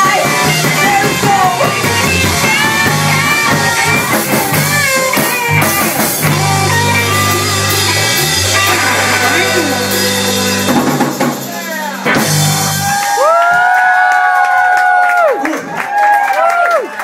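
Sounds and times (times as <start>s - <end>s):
bass guitar low notes: 0.0s - 13.1s
electric guitar: 0.0s - 14.4s.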